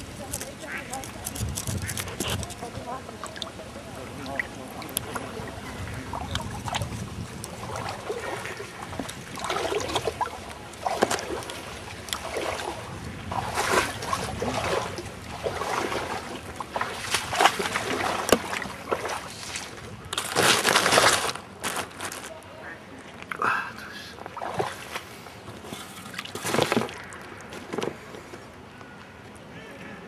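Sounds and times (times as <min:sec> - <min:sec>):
rushing splashing water: 0:02.6 - 0:21.4.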